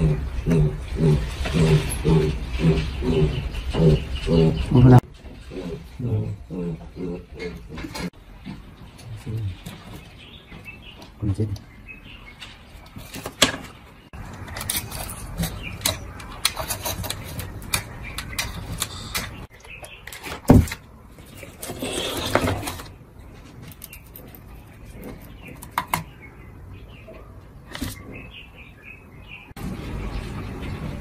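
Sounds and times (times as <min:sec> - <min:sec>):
rustling and scraping: 0:12.3 - 0:26.1.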